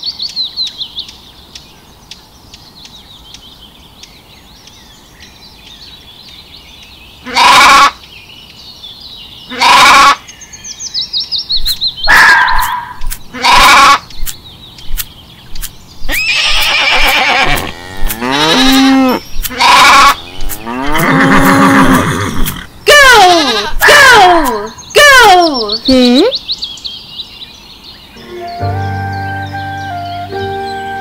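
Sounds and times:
birdsong chirping: 0.0 - 31.0
sheep bleating: 13.3 - 14.0, 16.1 - 22.0.

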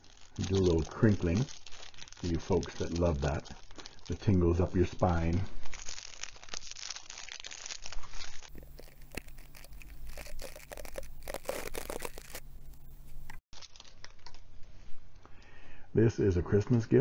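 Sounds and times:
plastic sleeve crinkling: 0.0 - 14.6
toothbrush bristles scratching microphone: 7.9 - 13.4
low steady hum: 8.0 - 15.8.

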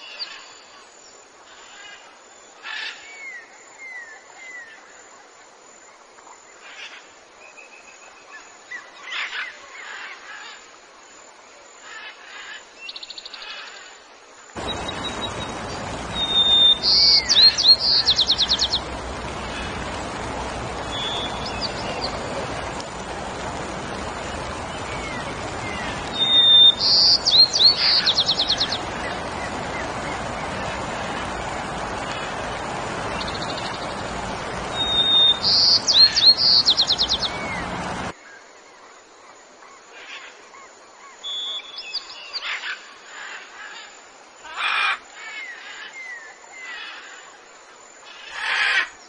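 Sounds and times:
small birds chirping: 14.6 - 38.2
steady rushing noise: 14.6 - 38.2.

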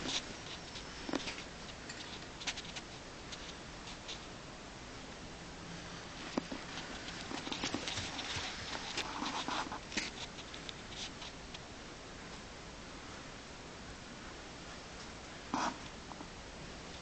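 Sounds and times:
rabbits rustling in straw: 0.0 - 11.6.

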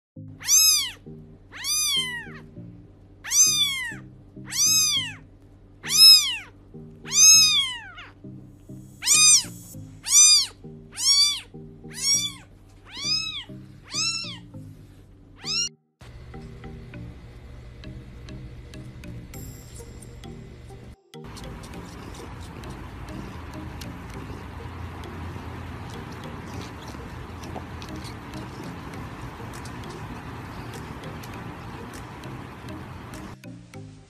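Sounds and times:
background music: 0.2 - 34.0
kitten mewing: 0.4 - 2.5, 3.2 - 5.2, 5.8 - 8.1, 9.0 - 14.5, 15.4 - 15.8, 21.3 - 33.4.

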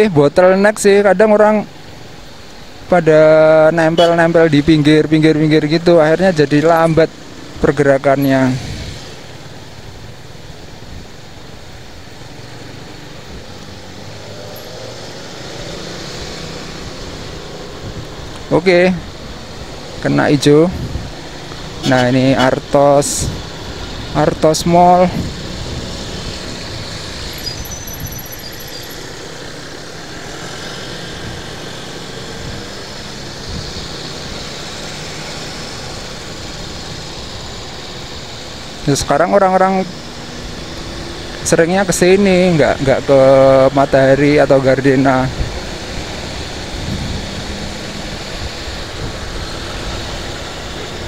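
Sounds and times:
traffic engines and road noise: 0.0 - 51.0.

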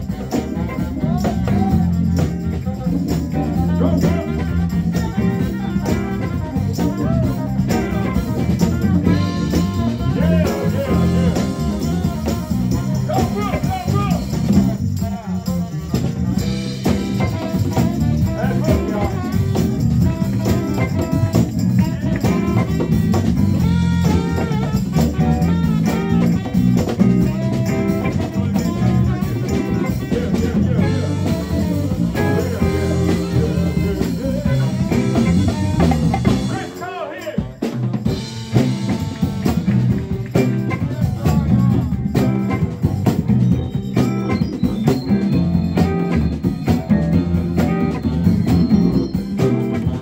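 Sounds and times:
live band playing: 0.0 - 50.0.

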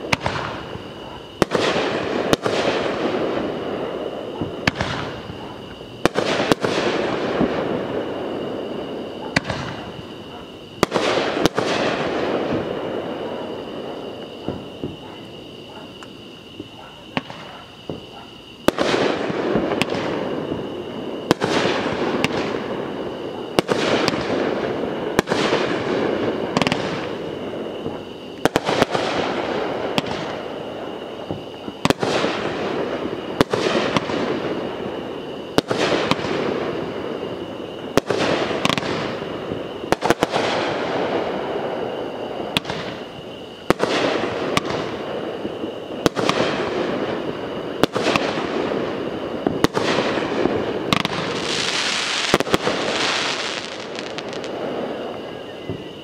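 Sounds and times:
crackling echoing decay: 0.0 - 56.0
aerial fireworks bangs: 4.4 - 5.4, 6.0 - 10.0, 49.4 - 54.5.

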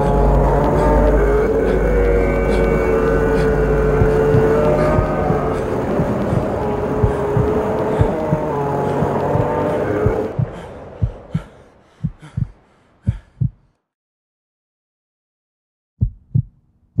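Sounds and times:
trailer music: 0.0 - 11.2
heartbeat thumps: 2.5 - 13.8, 16.0 - 17.0.

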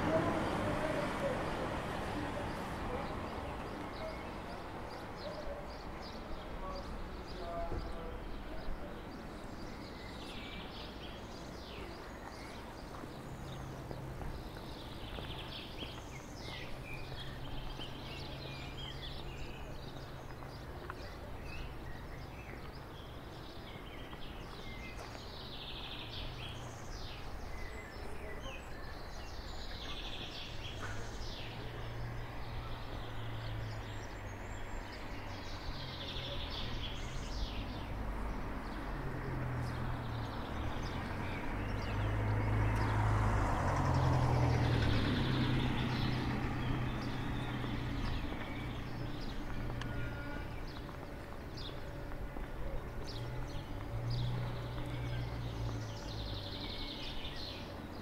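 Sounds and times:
outdoor background noise: 0.0 - 58.0
small birds chirping: 0.0 - 58.0.

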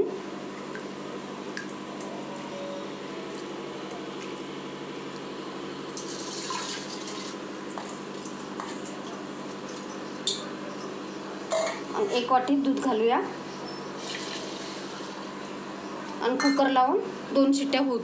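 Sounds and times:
dripping water: 0.5 - 2.1.

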